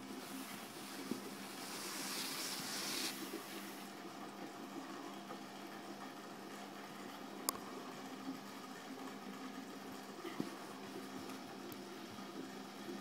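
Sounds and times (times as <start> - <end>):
background hiss: 0.0 - 3.9
rushing hiss: 1.6 - 3.7.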